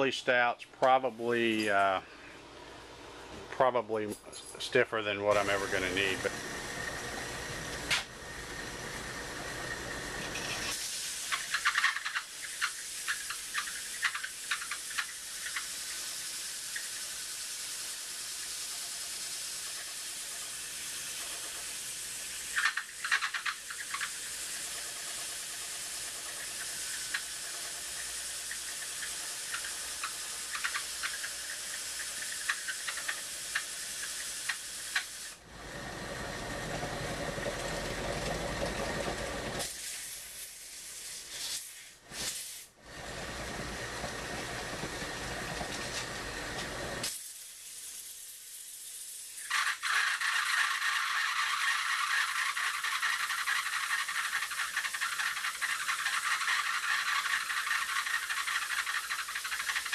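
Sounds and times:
electric motor: 0:05.3 - 0:40.2, 0:42.8 - 0:47.3, 0:49.4 - 0:59.9
sanding block hissing on wheel: 0:10.4 - 0:35.4, 0:45.2 - 0:59.9.

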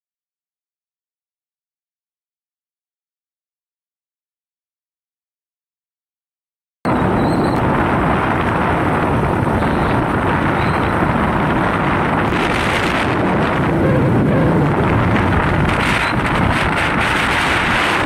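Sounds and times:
motorcycle running: 0:06.9 - 0:18.0
road noise: 0:06.9 - 0:18.0
wind rushing over microphone: 0:06.9 - 0:18.0.

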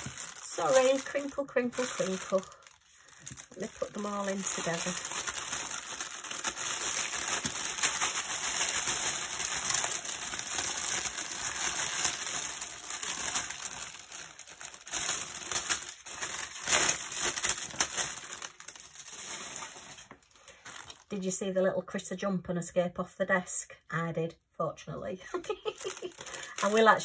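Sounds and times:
plastic bags crinkling: 0:00.0 - 0:21.2, 0:25.3 - 0:27.0.

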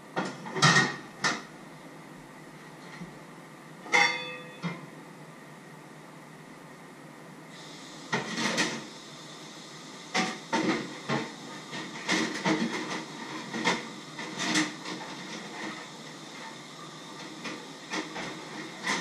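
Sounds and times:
steady hiss: 0:05.0 - 0:19.0.

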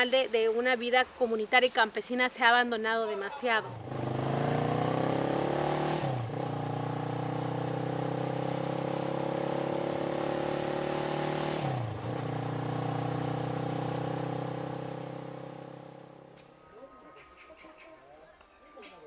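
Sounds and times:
vehicle engine accelerating: 0:03.7 - 0:16.4.

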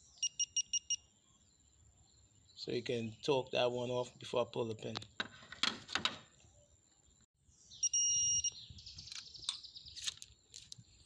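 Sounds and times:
high steady beep: 0:00.2 - 0:01.1, 0:07.8 - 0:08.6.

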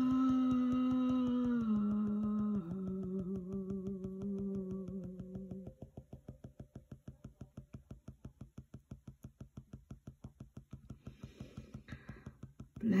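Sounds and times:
hummed tone: 0:00.0 - 0:09.5.

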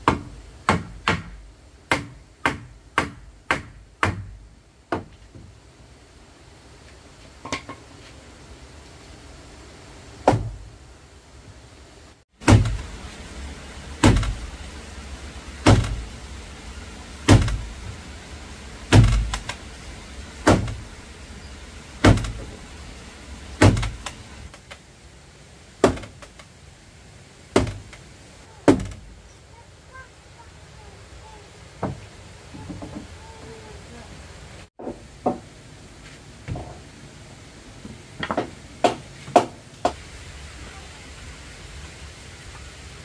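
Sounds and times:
heavy blows on wood: 0:10.2 - 0:10.7, 0:12.4 - 0:14.7, 0:15.5 - 0:16.2, 0:17.2 - 0:18.0, 0:18.8 - 0:19.7, 0:20.4 - 0:21.0, 0:21.8 - 0:24.7, 0:27.5 - 0:29.2.

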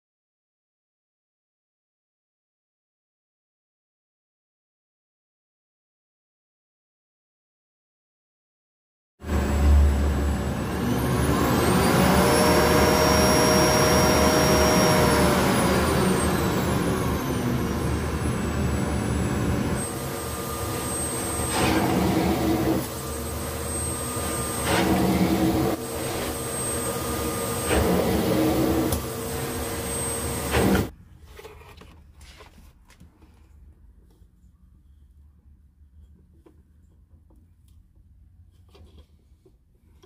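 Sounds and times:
vacuum cleaner motor whine: 0:09.2 - 0:30.9
vacuum nozzle on shaggy rug: 0:09.2 - 0:30.9.

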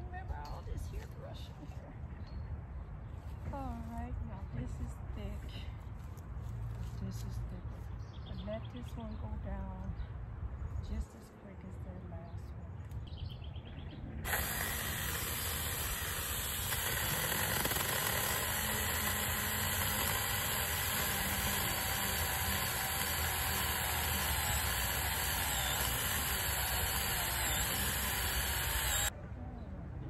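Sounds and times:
cordless chainsaw cutting branch: 0:14.2 - 0:29.1.

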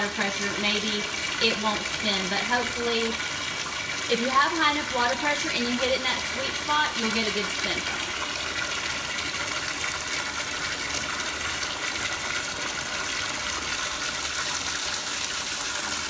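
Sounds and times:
faucet water gushing into tub: 0:00.0 - 0:16.0.

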